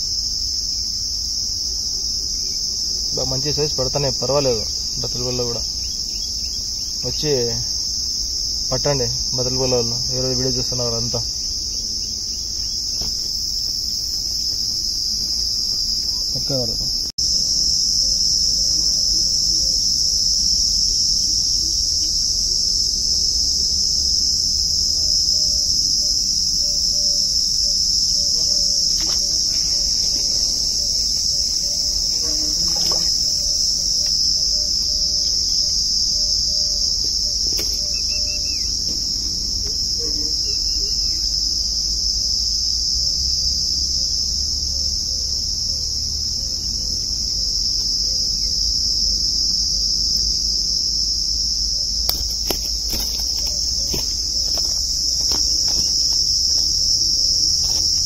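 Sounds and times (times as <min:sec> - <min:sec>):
high-pitched insect chorus: 0:00.0 - 0:58.0
faint bird chirps: 0:36.2 - 0:38.8.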